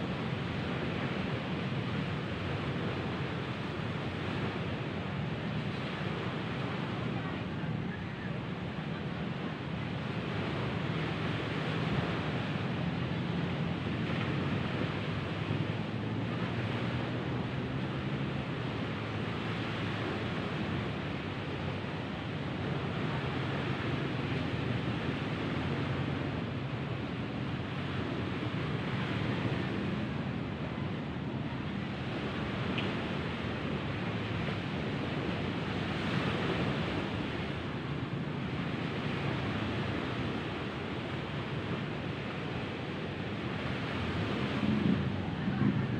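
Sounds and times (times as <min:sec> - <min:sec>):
surf: 0:00.0 - 0:45.9
wind: 0:00.0 - 0:45.9.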